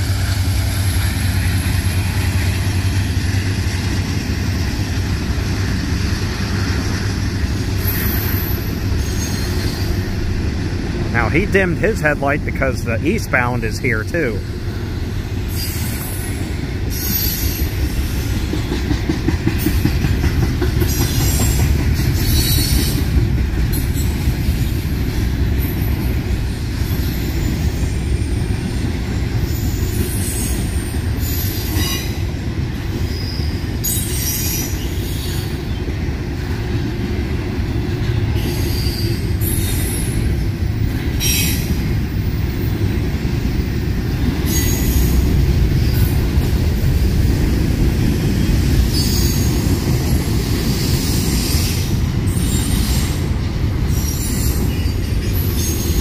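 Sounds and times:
train wheels rumbling on rails: 0:00.0 - 0:56.0
wheel squeals: 0:07.8 - 0:10.1, 0:53.9 - 0:56.0.

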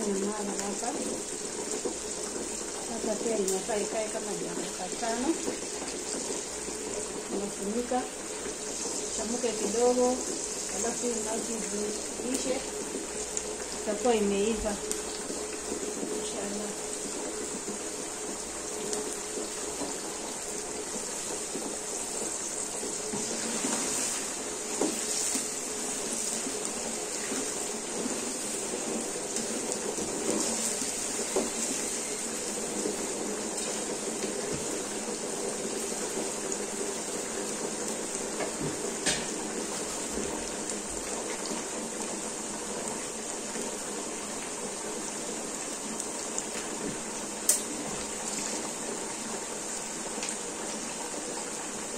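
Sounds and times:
beans sizzling in a pan: 0:00.0 - 0:51.9.

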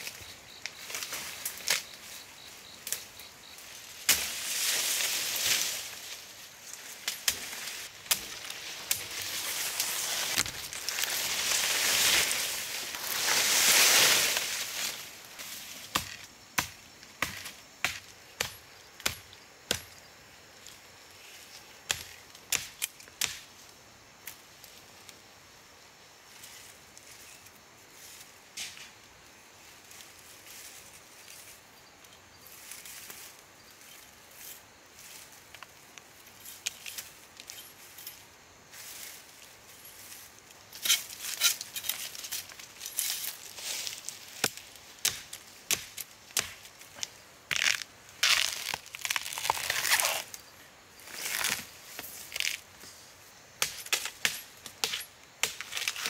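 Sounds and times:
sharp knocks and cracks: 0:04.0 - 0:04.4, 0:07.0 - 0:09.1, 0:15.9 - 0:19.9, 0:21.9 - 0:23.5, 0:44.3 - 0:50.0, 0:53.6 - 0:56.0.

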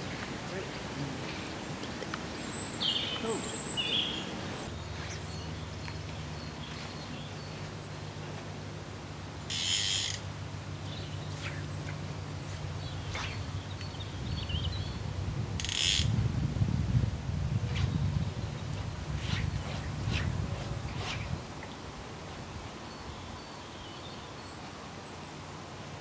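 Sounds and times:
small birds chirping: 0:00.5 - 0:08.4, 0:09.4 - 0:16.1
steady low hum: 0:03.5 - 0:22.7
bird warbling call: 0:09.5 - 0:10.2.

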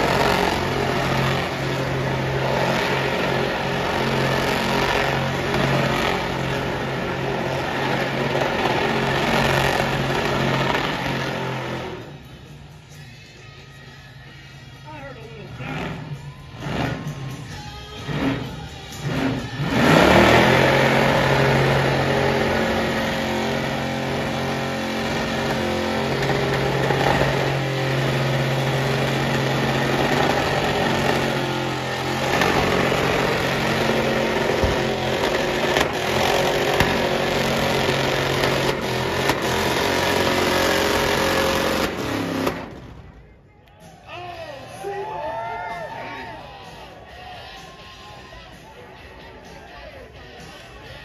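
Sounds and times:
pickup engine revving hard: 0:00.0 - 0:12.1, 0:18.0 - 0:42.9.

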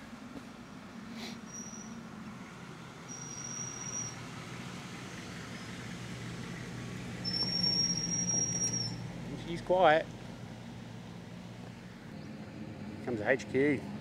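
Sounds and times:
car engine passing slowly: 0:00.0 - 0:14.0
thin high whistling tone: 0:07.3 - 0:09.0.

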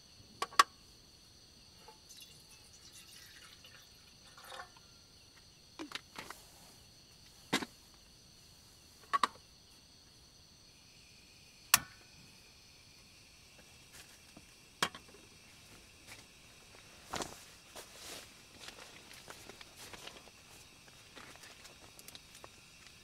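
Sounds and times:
crickets chirring: 0:00.0 - 0:23.0
water trickling: 0:01.9 - 0:05.0
stove igniter clicks: 0:11.7 - 0:12.0.

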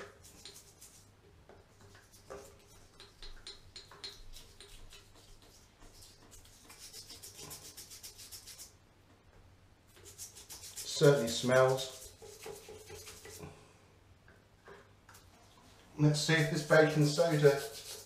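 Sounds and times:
toothbrush scrubbing a tap: 0:00.0 - 0:08.7, 0:09.9 - 0:13.5, 0:16.2 - 0:18.0.

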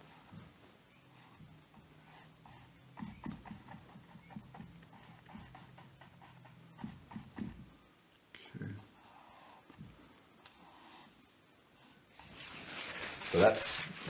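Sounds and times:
paintbrush tapping on canvas: 0:02.9 - 0:04.7, 0:06.8 - 0:07.7.

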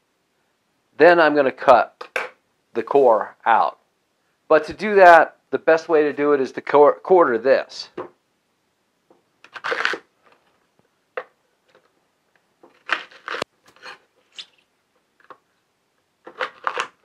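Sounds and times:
knife crunching through fennel: 0:09.5 - 0:10.1, 0:12.7 - 0:14.6, 0:16.2 - 0:17.0.

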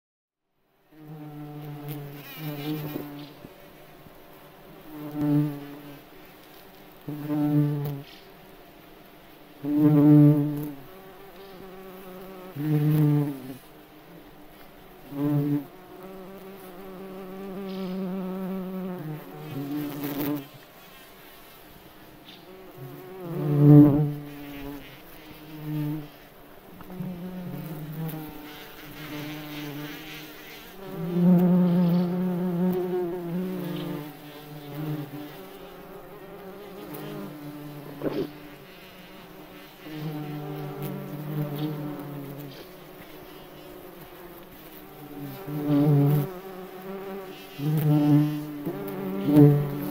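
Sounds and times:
bumblebee wings buzzing: 0:01.0 - 0:08.7, 0:09.3 - 0:49.9.

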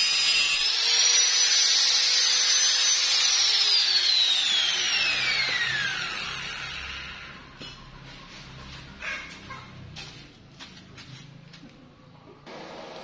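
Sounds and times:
angle grinder cutting metal pipe: 0:00.0 - 0:07.6
grinder spinning down: 0:00.0 - 0:07.6.

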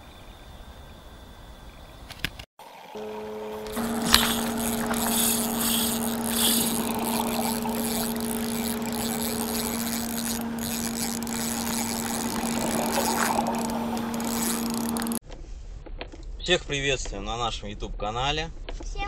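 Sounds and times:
low two-tone hum: 0:02.8 - 0:15.2.

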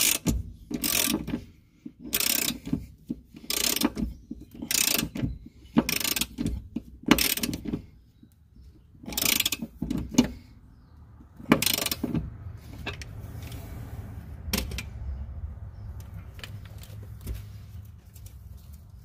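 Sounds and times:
ratchet wrench clicking: 0:00.0 - 0:01.3, 0:02.0 - 0:05.2, 0:05.8 - 0:07.7, 0:09.0 - 0:10.2, 0:11.5 - 0:12.2.

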